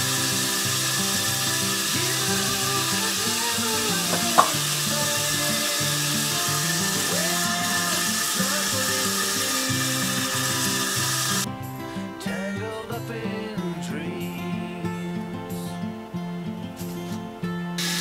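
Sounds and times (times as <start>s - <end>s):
sponge hissing on fittings: 0.0s - 11.5s, 17.8s - 18.0s
soft background music: 0.0s - 18.0s.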